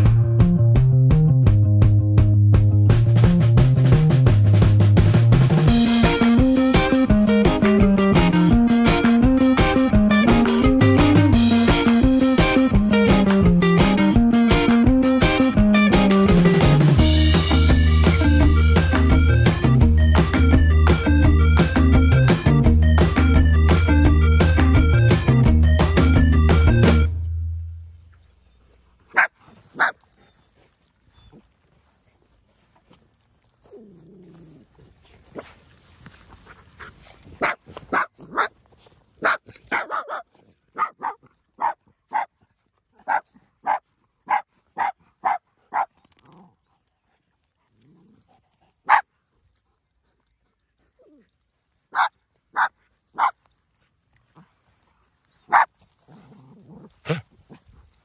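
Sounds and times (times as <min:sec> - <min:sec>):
small dog barking: 0:29.1 - 0:30.0, 0:37.4 - 0:38.6, 0:39.2 - 0:42.3, 0:43.0 - 0:45.9, 0:48.8 - 0:49.1, 0:51.9 - 0:53.4, 0:55.5 - 0:56.2.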